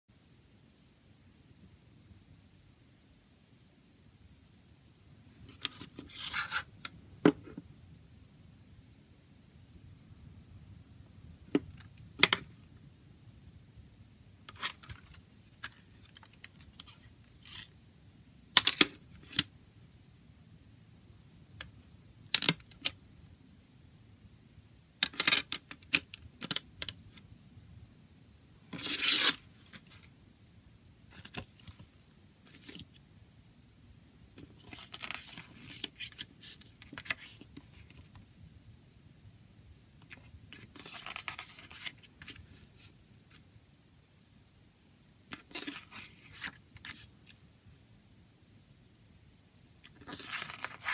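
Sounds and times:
paper rustling: 34.4s - 38.2s, 40.0s - 43.4s, 49.9s - 50.9s
paper booklet sliding out: 50.0s - 50.9s.

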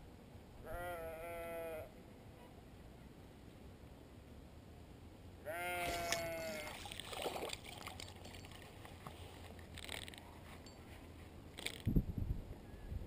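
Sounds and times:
sheep bleating: 0.7s - 1.9s, 5.4s - 6.8s
water splashes: 5.8s - 9.0s
fishing reel clicks: 9.7s - 10.2s, 11.6s - 11.9s.

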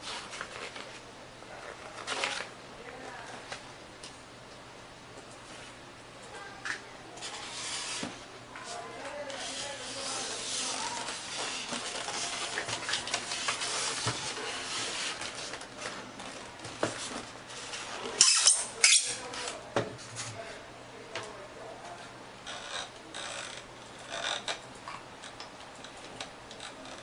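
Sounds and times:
styrofoam scraping cardboard: 7.2s - 15.6s.

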